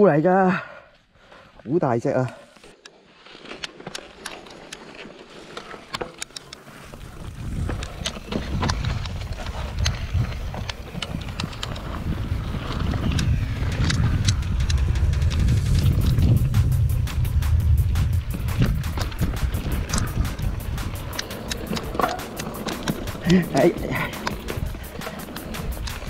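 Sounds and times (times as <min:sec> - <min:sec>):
bike clicking and rattling: 0:02.2 - 0:26.0
wind rumble on microphone: 0:07.0 - 0:22.1.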